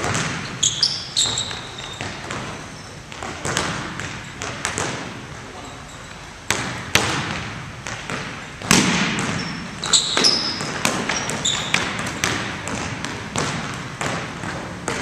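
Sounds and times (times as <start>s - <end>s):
sneaker squeaks: 0.0s - 4.8s, 5.6s - 6.4s, 8.4s - 12.5s
basketball bouncing on hardwood: 0.0s - 5.1s, 6.5s - 15.0s.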